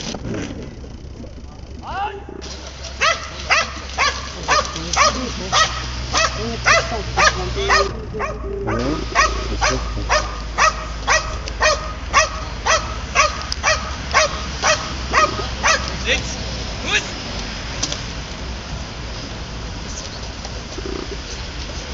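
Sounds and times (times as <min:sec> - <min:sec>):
dog barking: 0:02.9 - 0:15.9.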